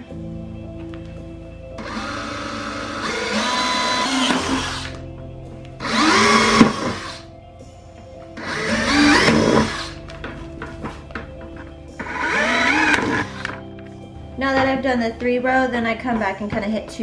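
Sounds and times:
faint background music: 0:00.0 - 0:17.0
cordless drill through plastic: 0:01.8 - 0:05.0, 0:05.8 - 0:07.2, 0:08.4 - 0:10.0, 0:12.0 - 0:13.6.

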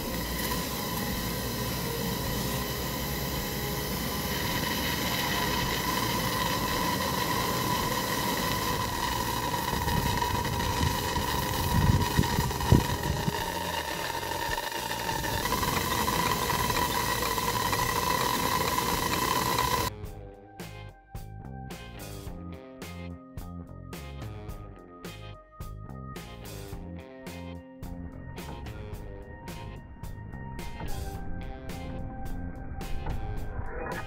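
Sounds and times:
steam hissing with whistling tone: 0:00.0 - 0:19.9.

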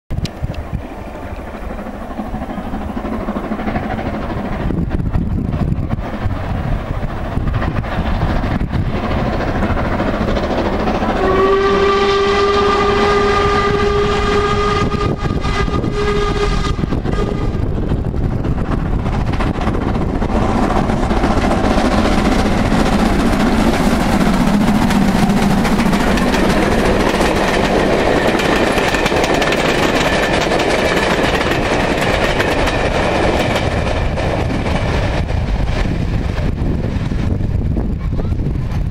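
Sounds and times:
train rumbling past: 0:00.1 - 0:38.9
steam locomotive whistle: 0:11.0 - 0:17.7.

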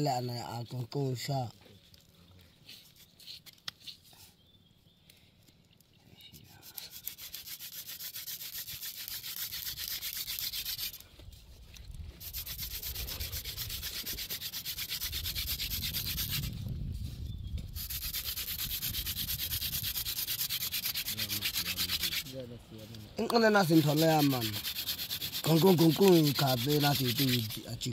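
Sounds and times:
rhythmic rubbing rasping: 0:06.7 - 0:11.0, 0:12.2 - 0:16.5, 0:17.8 - 0:22.4, 0:23.2 - 0:27.9.

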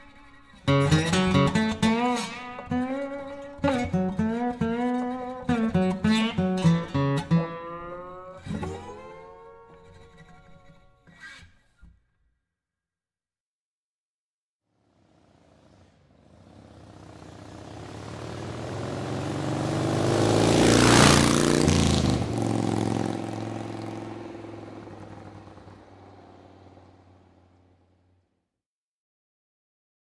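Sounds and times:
motor vehicle passing by: 0:14.7 - 0:28.2.

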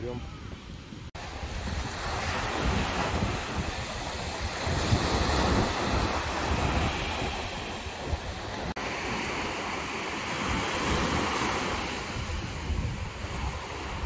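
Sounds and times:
wind buffeting microphone: 0:00.0 - 0:14.0
surf breaking on beach: 0:01.1 - 0:14.0.

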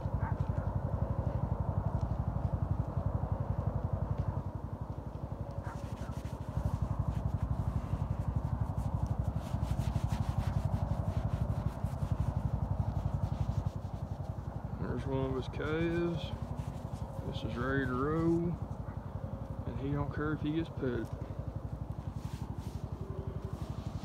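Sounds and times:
pulsing low rumble: 0:00.0 - 0:24.0
hand scratching coarse hair: 0:05.7 - 0:18.6, 0:22.0 - 0:24.0.

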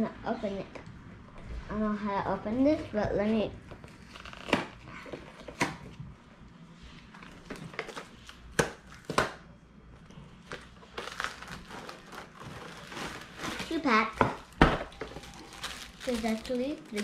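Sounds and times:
plastic sleeves crinkling: 0:03.9 - 0:04.9, 0:10.4 - 0:17.0.

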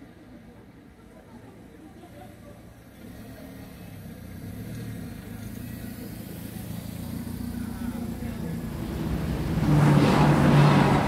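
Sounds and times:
car approaching: 0:02.3 - 0:11.0
approaching train rumble: 0:06.0 - 0:11.0.

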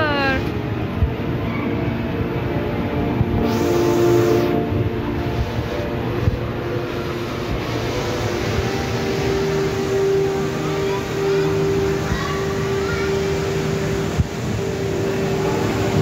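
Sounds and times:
mechanical hum with held tone: 0:00.0 - 0:16.0.

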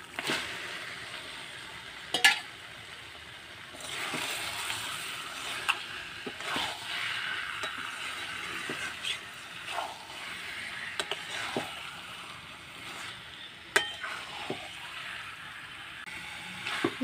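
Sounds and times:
meat sizzling in a pan: 0:00.0 - 0:17.0
spatula scraping and tapping pan: 0:02.1 - 0:02.5, 0:05.4 - 0:12.0, 0:12.8 - 0:15.2.

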